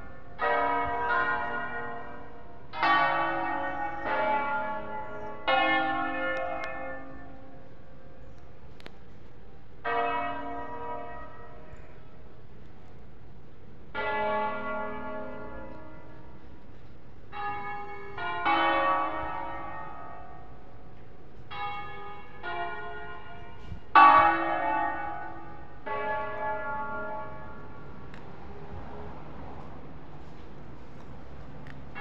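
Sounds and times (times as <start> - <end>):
church bells ringing: 0.0 - 8.2, 9.7 - 12.5, 13.8 - 28.2.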